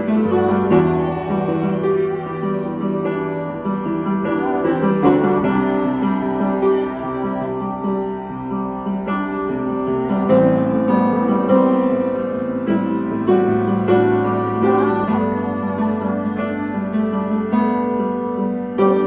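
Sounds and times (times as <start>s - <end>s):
keyboard chords worship music: 0.0s - 12.6s.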